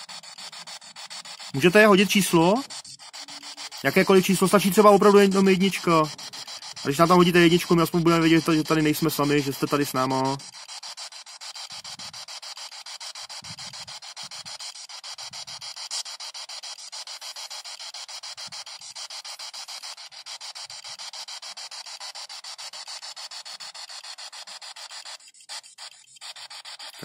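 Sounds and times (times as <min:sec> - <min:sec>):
pulsing radio static: 0:01.6 - 0:10.5.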